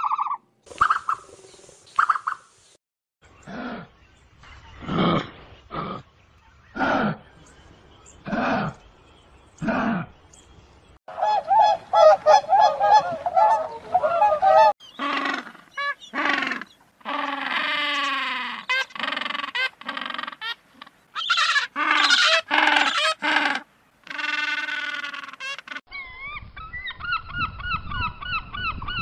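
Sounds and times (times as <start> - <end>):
high chattering calls: 11.2 - 29.0.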